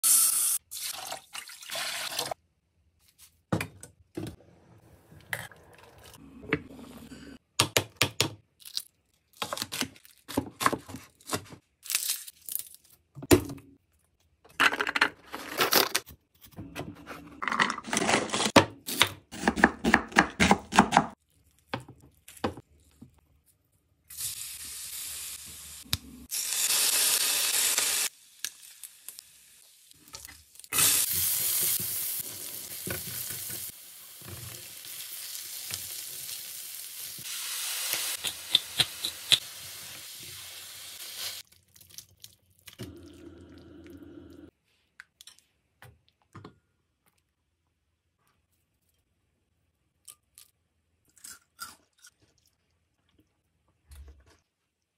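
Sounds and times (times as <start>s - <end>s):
food sizzling in pan: 24.1s - 41.4s.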